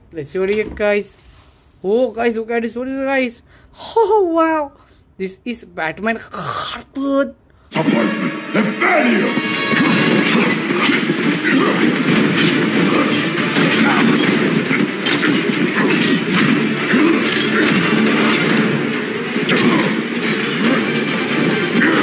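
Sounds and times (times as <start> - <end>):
soundtrack music: 7.7 - 22.0
hits blows and crashes: 7.8 - 22.0.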